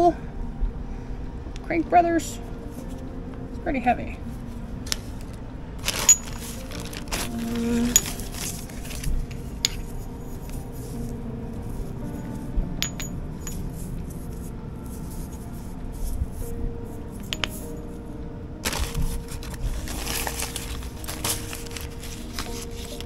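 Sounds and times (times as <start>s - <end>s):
metal tools clinking on concrete: 5.9s - 6.6s, 12.8s - 13.6s.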